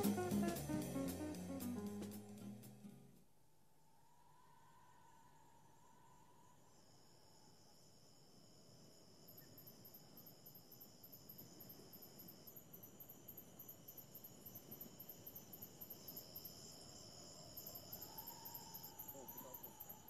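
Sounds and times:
high-pitched whine and hiss: 0:00.0 - 0:02.2
insect chirping: 0:04.1 - 0:20.0.

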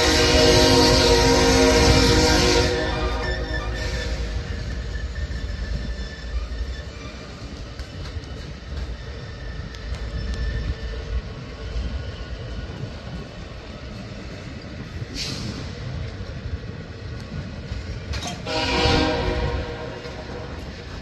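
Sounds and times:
locomotive horn: 0:00.0 - 0:04.6, 0:18.2 - 0:20.7
train wheels rumbling on rail: 0:00.0 - 0:21.0
brief hiss: 0:15.1 - 0:15.8.

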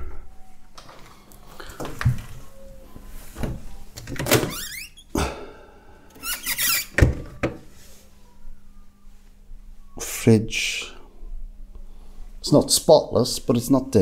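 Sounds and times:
rising squeak: 0:06.2 - 0:06.9
fridge door thunks and knocks: 0:07.0 - 0:07.6.

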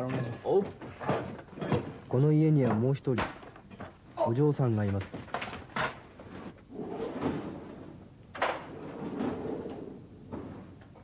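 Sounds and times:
wooden sliding door rolling: 0:06.7 - 0:10.8.

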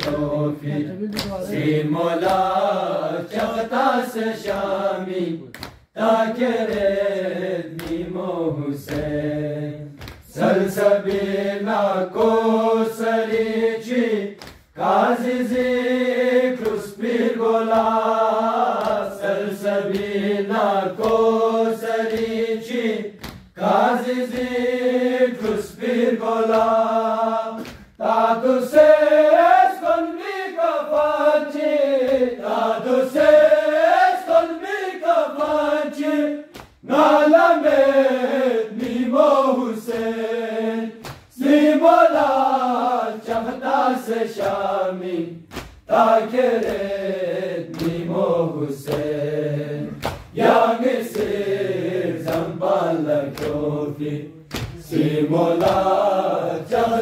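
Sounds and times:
men chanting in unison: 0:00.0 - 0:57.0.

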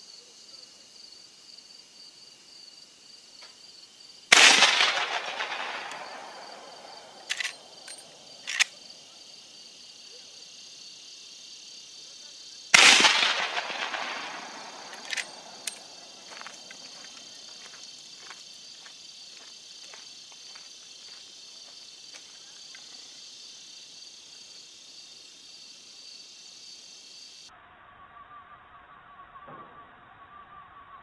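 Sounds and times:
insects chirring: 0:00.0 - 0:29.6
rifle shots echoing: 0:04.3 - 0:08.7, 0:12.8 - 0:17.1
rifle lever metallic clicks: 0:07.2 - 0:08.7, 0:14.8 - 0:15.8.

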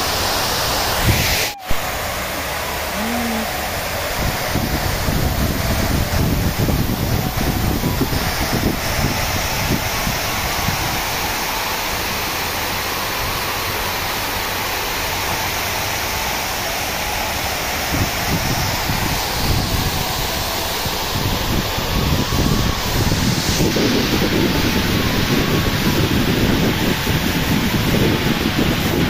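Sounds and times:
wind buffeting microphone: 0:03.6 - 0:11.5, 0:17.8 - 0:29.0.

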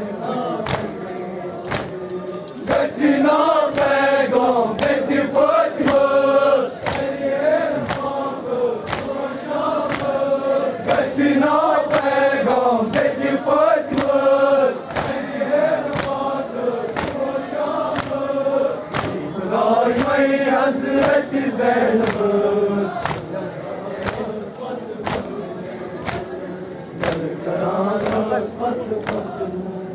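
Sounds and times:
crowd of men chanting: 0:00.0 - 0:29.9
chest beating slaps: 0:00.6 - 0:01.0, 0:01.7 - 0:02.0, 0:07.8 - 0:08.1, 0:08.8 - 0:09.2, 0:14.9 - 0:15.2, 0:18.9 - 0:19.3, 0:23.0 - 0:23.3, 0:24.0 - 0:24.3, 0:25.0 - 0:25.4, 0:26.0 - 0:26.4.

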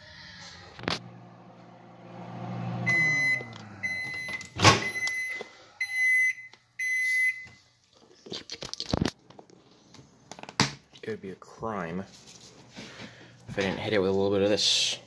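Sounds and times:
microwave oven humming: 0:00.8 - 0:05.3.

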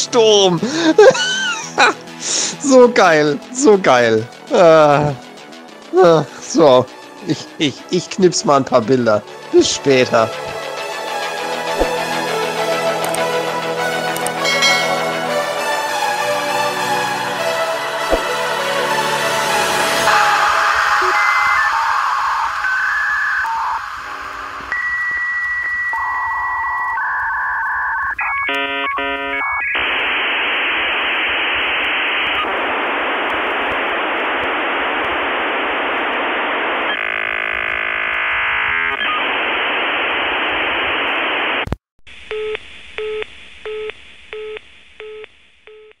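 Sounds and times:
telephone tone beeping: 0:14.2 - 0:15.2, 0:20.1 - 0:30.2, 0:42.3 - 0:46.0
modem tones and warbling: 0:20.1 - 0:41.7.

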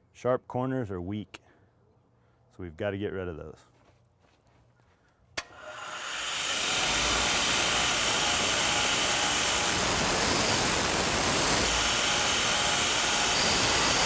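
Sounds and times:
grinder motor running: 0:05.4 - 0:14.0.

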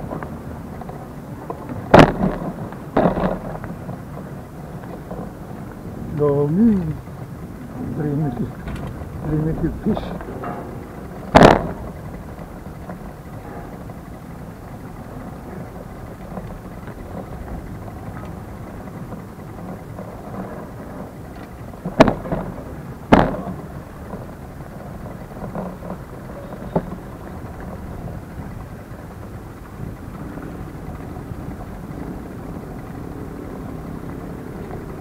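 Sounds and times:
faint clicks: 0:00.0 - 0:35.0
steady low rumble: 0:00.0 - 0:35.0
loud sharp knocks: 0:01.9 - 0:03.5, 0:10.0 - 0:12.0, 0:23.1 - 0:23.6.

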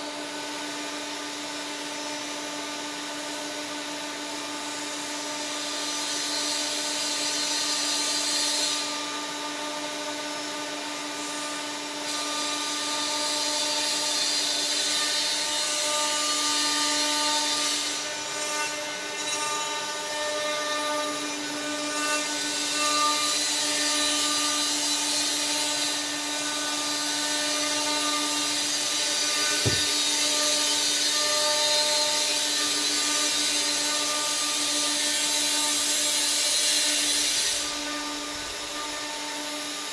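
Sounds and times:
workshop machinery humming: 0:24.8 - 0:31.2
dull thump: 0:29.6 - 0:30.0.

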